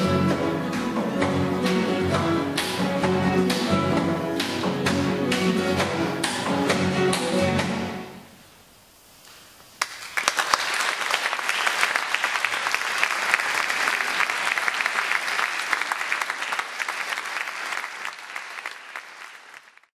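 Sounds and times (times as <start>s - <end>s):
audience applauding: 9.8s - 19.9s.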